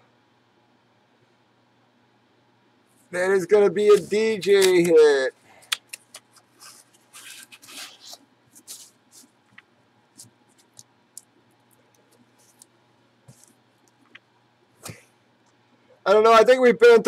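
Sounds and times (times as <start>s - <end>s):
cardboard scraping and rustling: 6.4s - 9.3s.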